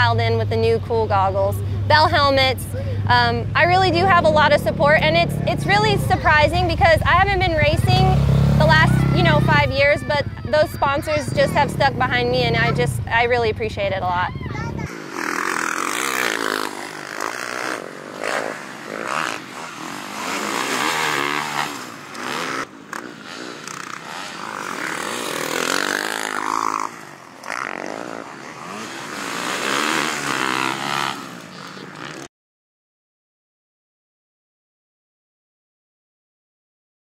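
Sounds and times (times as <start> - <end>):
motocross bike engine revving: 0.0 - 32.3.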